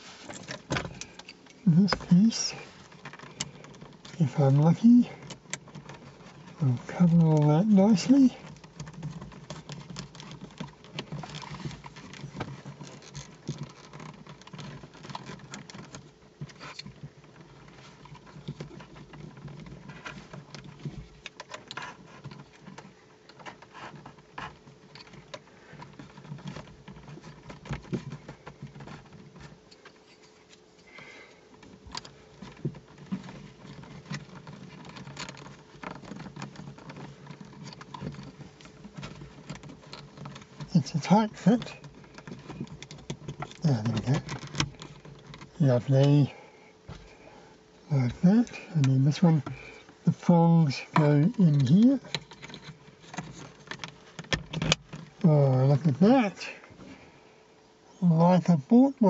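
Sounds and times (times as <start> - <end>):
faint steady hum: 0.0 - 59.0
plastic clicks and scrapes: 50.7 - 55.3.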